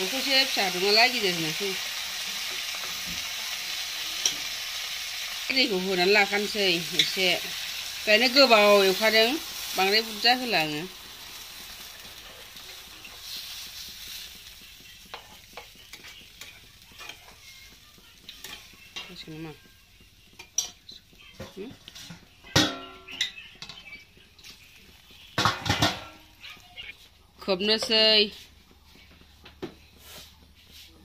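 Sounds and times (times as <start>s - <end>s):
food sizzling in a frying pan: 0.0s - 31.0s
metal spatula scraping a pan: 15.1s - 17.4s.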